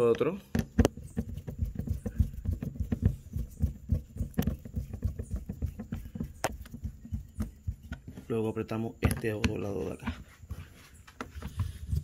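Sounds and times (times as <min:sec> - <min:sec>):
screwdriver knocks and creaks: 0:00.0 - 0:12.0.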